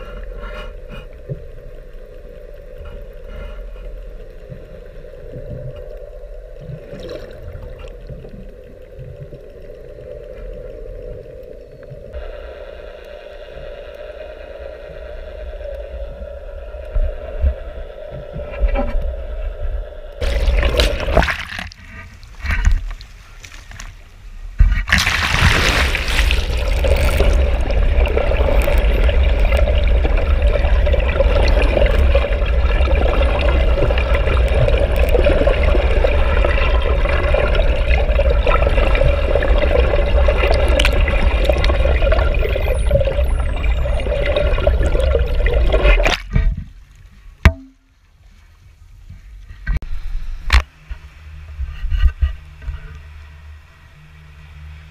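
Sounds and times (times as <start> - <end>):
water splashes: 0.0 - 12.4, 20.2 - 48.6
water rushing underwater: 0.0 - 23.9, 24.6 - 46.6
boat engine drone: 25.6 - 46.0, 49.9 - 54.9.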